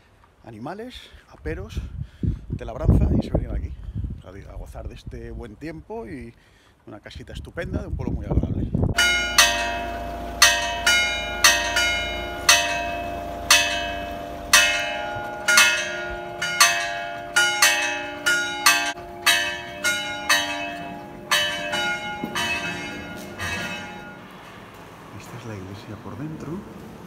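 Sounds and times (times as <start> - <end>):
church bells ringing: 8.9 - 25.3.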